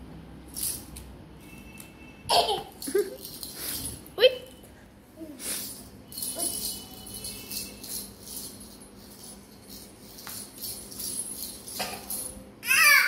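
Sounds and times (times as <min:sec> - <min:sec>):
small bells jingling: 0:02.4 - 0:04.7, 0:05.4 - 0:12.5.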